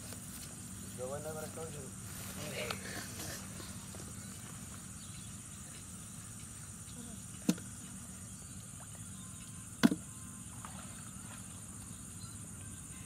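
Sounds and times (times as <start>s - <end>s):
steady high hiss: 0.0s - 13.0s
knocks on plastic bucket: 9.8s - 10.0s.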